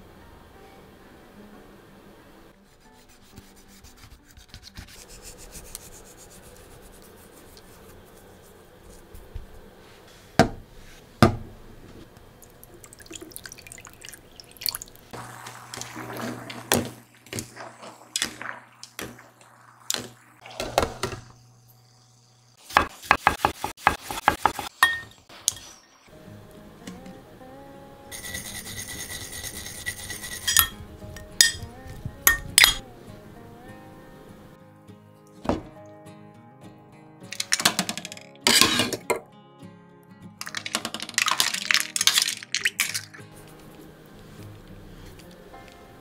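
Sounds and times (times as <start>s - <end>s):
water poured into a pan: 12.4s - 22.2s, 40.4s - 43.2s.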